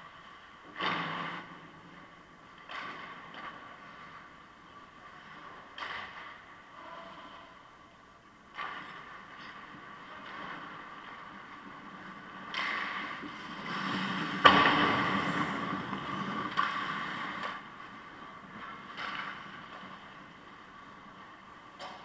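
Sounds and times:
puck or stick crack: 0.7 - 1.6, 2.5 - 4.3, 5.4 - 6.6, 8.5 - 20.8
skates scraping on ice: 8.6 - 21.8.

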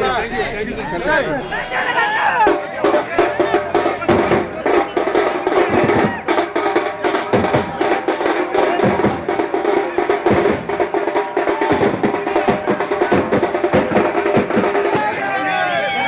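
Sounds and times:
fast drumming: 2.3 - 15.6.

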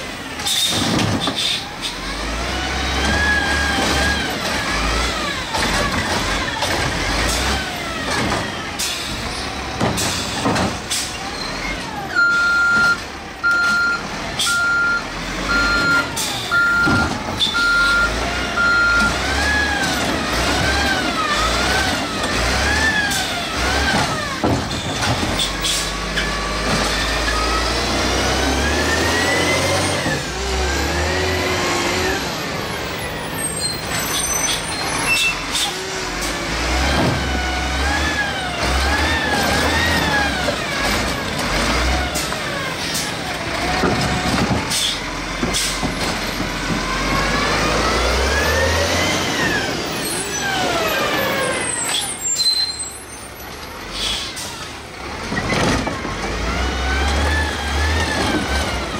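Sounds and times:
truck engine revving: 0.0 - 58.9
reversing beeper: 12.2 - 19.2.

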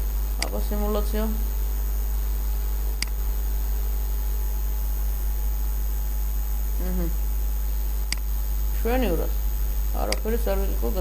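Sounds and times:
electrical mains hum: 0.0 - 11.0
faint high-pitched whine: 0.0 - 11.0
sharp click: 8.1 - 8.3.

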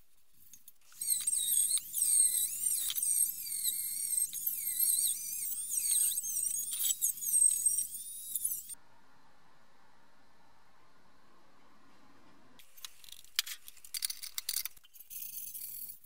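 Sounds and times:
rotary tool wire brush whining: 0.8 - 8.8.

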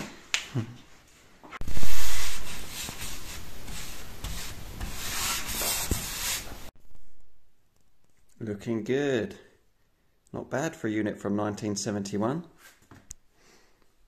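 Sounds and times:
paintbrush rubbing on wood: 1.6 - 6.7.

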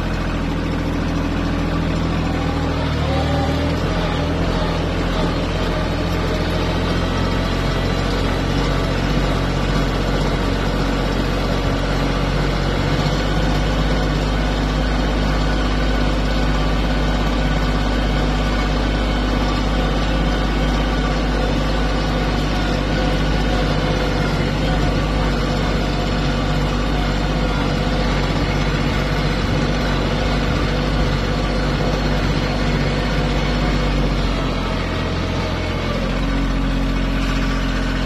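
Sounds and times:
tractor diesel engine running: 0.0 - 38.0.

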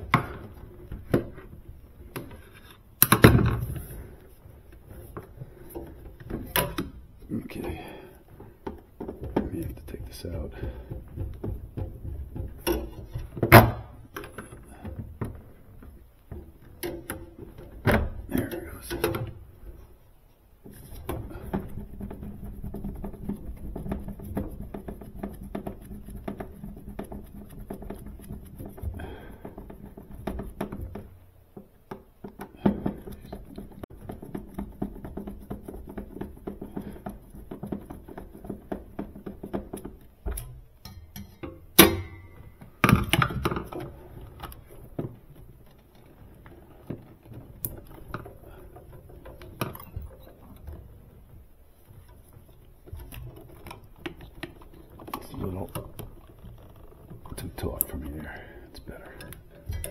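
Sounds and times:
metal clatter: 20.7 - 59.9
hand tools clicking on metal parts: 57.3 - 59.9.

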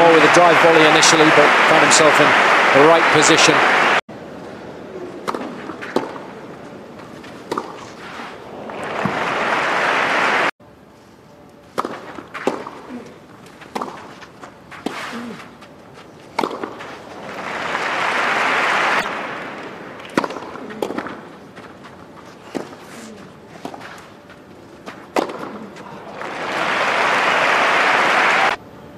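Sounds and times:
crowd applause: 0.0 - 4.0, 8.6 - 10.5, 16.8 - 20.4, 25.4 - 28.6
tennis balls struck by racquets: 5.2 - 8.0, 11.7 - 24.1, 24.8 - 26.4.

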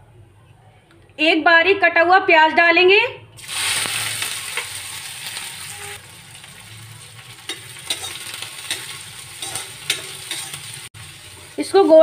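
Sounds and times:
onion sizzling in hot oil: 3.4 - 12.0
spatula scraping pan: 7.2 - 10.9.

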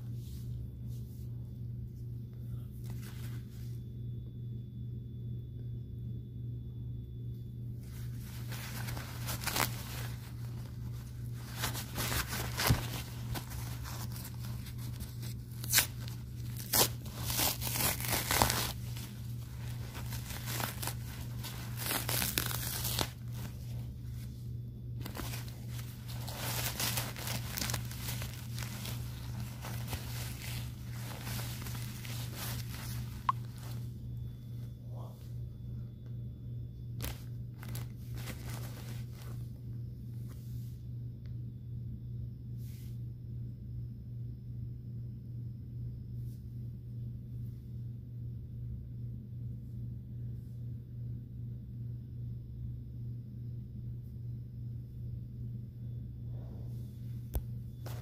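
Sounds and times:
steady low hum: 0.0 - 58.0
diaper crinkling and rustling: 2.8 - 3.6, 7.8 - 24.3, 25.0 - 33.9, 37.0 - 39.6, 57.3 - 58.0.

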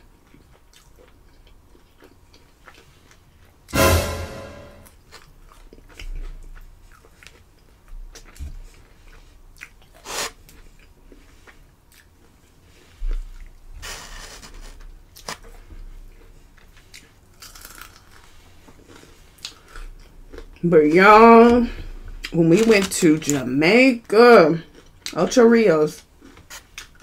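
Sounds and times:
chewing with crunches: 0.0 - 3.7, 5.1 - 20.6, 24.6 - 25.2, 26.0 - 27.0.

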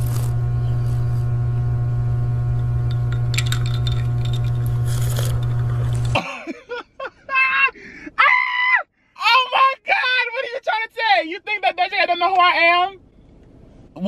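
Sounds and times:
loud low buzz: 0.0 - 6.2.

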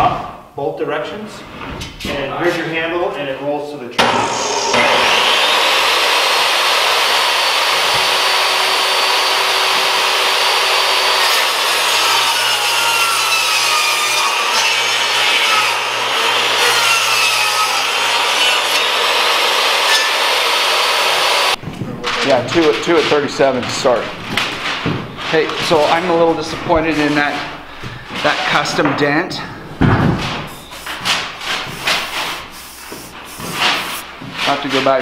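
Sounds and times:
table saw cutting wood: 4.0 - 21.6, 30.5 - 34.0.

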